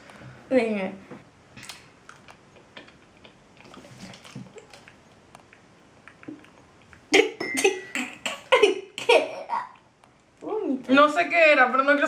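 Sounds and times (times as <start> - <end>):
wet chewing mouth clicks: 1.6 - 7.1.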